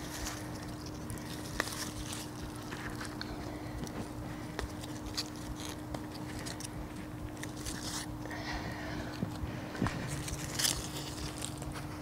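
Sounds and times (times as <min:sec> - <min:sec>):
faint steady hum: 0:00.0 - 0:12.0
hands digging through soil: 0:09.8 - 0:12.0.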